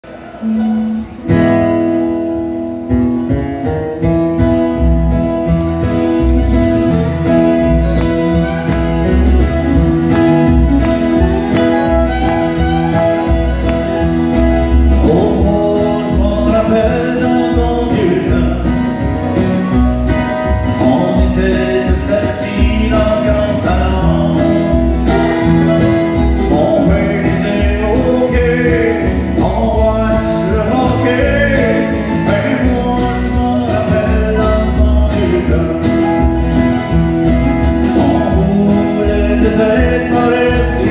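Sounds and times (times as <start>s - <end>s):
acoustic guitars playing: 0.0s - 40.9s
fiddle playing: 5.5s - 15.7s, 24.6s - 28.8s
man singing: 14.7s - 19.2s, 20.3s - 36.5s, 37.8s - 40.9s.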